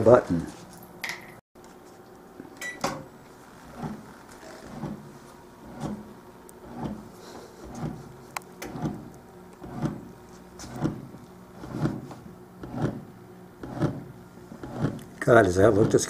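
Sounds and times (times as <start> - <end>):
steady low hum: 0.0 - 16.0
kneading motor pulsing: 3.4 - 16.0.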